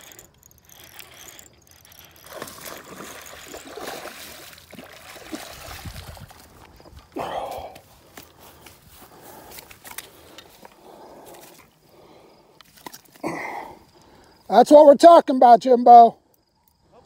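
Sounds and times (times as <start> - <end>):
water splashing and sloshing: 2.0 - 7.1.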